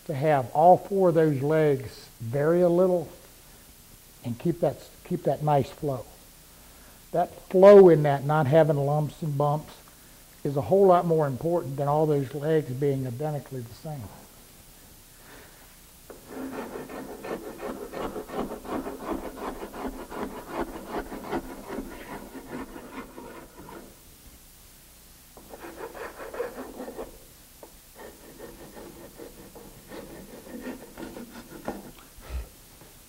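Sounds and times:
hand rasp filing: 16.2s - 24.0s, 25.4s - 27.2s, 28.0s - 32.0s.

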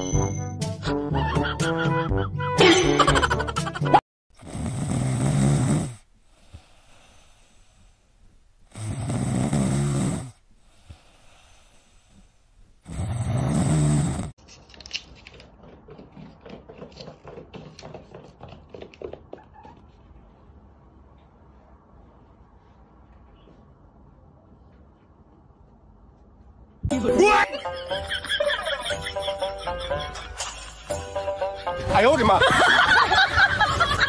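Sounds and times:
cat snoring: 4.4s - 8.0s, 8.7s - 14.4s.

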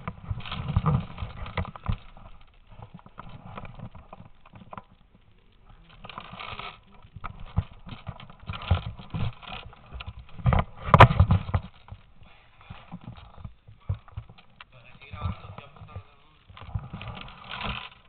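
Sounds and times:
footsteps: 5.7s - 18.0s.

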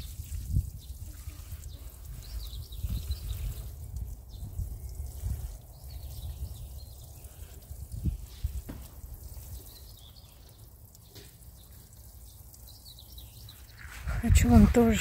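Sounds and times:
water sprinkling from watering can: 0.0s - 15.0s.

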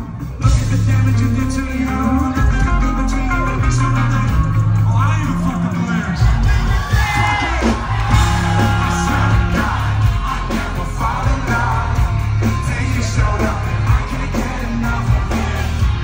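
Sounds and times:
live band playing pop-rock: 0.0s - 16.0s
man singing into a microphone: 0.3s - 16.0s
crowd yelling along: 3.5s - 16.0s.

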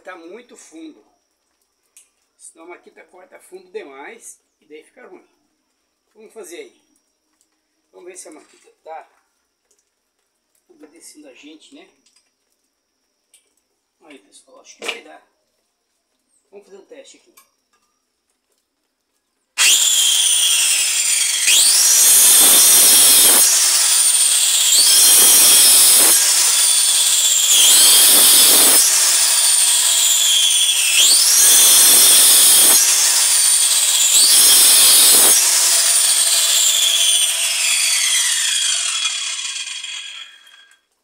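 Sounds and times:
circular saw cutting wood: 19.6s - 40.8s
saw blade winding down: 19.6s - 40.8s.

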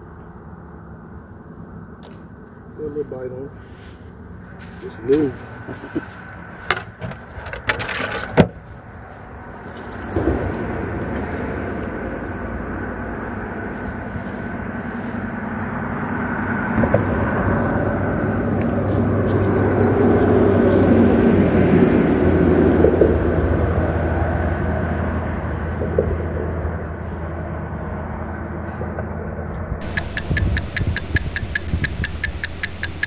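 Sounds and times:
passing vehicle rumble: 0.0s - 33.0s
sharp clicks and knocks: 29.8s - 33.0s.

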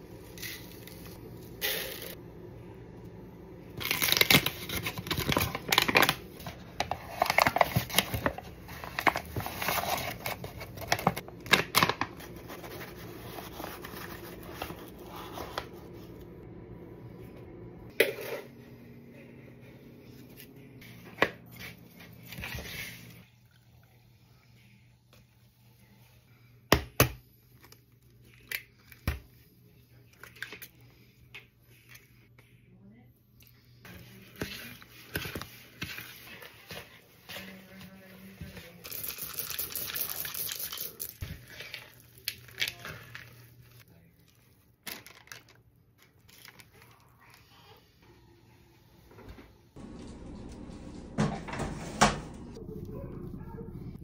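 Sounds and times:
paper bag crinkling and rustling: 3.8s - 15.8s, 44.8s - 47.2s.

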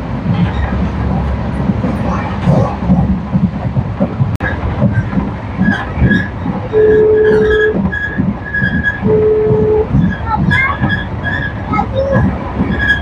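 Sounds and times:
steady train running noise: 0.0s - 13.0s
train wheels clattering: 0.0s - 13.0s
steady tone: 9.0s - 10.0s.

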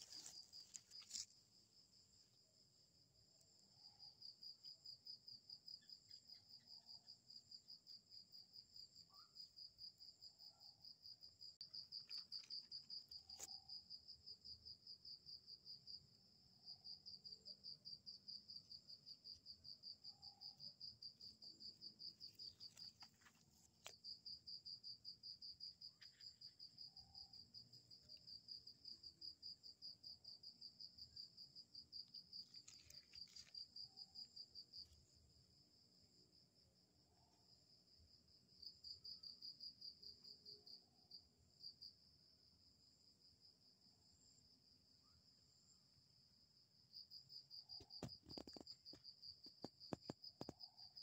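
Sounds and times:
cricket trilling: 0.0s - 2.3s, 3.6s - 36.1s, 46.8s - 51.0s.

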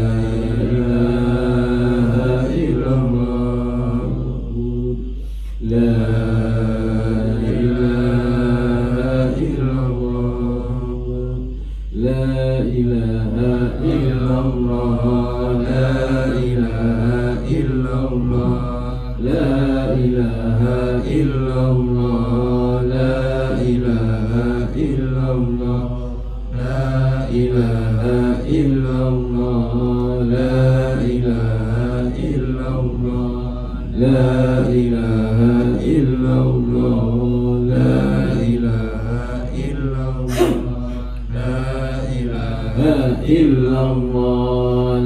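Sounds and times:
men chanting in unison: 0.0s - 45.0s
steady low hum: 0.0s - 45.0s
lead voice on a microphone: 40.3s - 41.0s.

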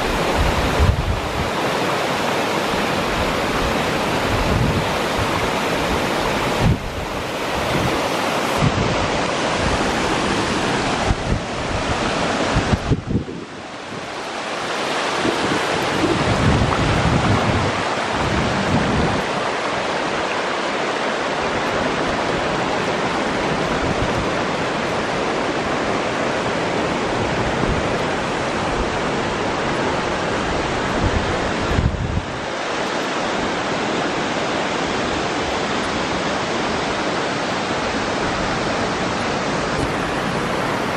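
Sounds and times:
wind buffeting microphone: 0.0s - 1.6s, 3.0s - 14.1s, 15.0s - 20.4s, 26.6s - 32.5s
waterfall and river rapids rushing: 0.0s - 40.9s.

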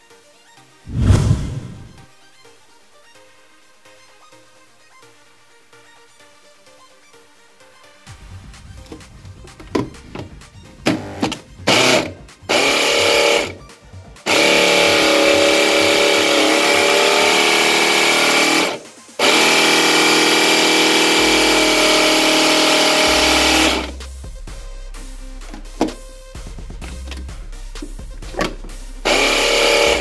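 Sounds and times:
blender motor chopping plastic: 10.8s - 13.6s, 14.3s - 24.0s, 28.4s - 30.0s.

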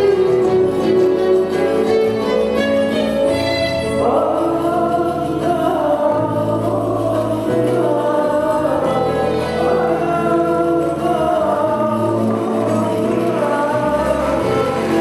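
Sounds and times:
bowed strings: 0.0s - 15.0s
man singing: 3.8s - 15.0s.

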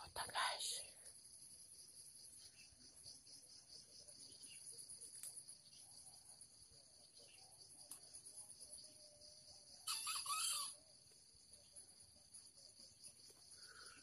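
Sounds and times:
crickets trilling: 0.0s - 14.0s
rooster crowing: 9.8s - 10.8s.

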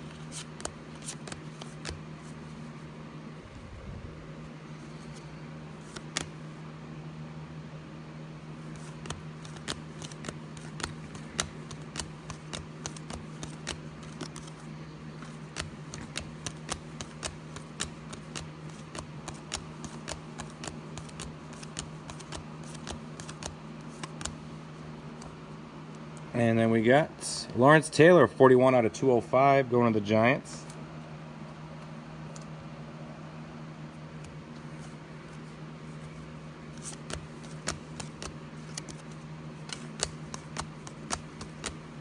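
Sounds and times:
cards flicked with crisp snaps: 0.0s - 2.4s, 5.0s - 6.4s, 8.7s - 24.4s, 36.7s - 42.0s
steady low hum: 0.0s - 42.0s.

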